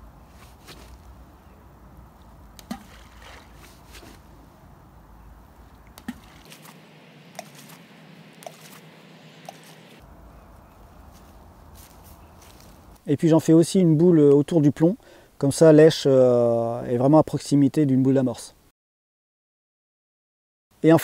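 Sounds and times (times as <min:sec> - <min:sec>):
low wind rumble: 0:00.0 - 0:02.6, 0:03.4 - 0:13.0
balls plopping into pond: 0:02.5 - 0:03.6, 0:05.7 - 0:08.8.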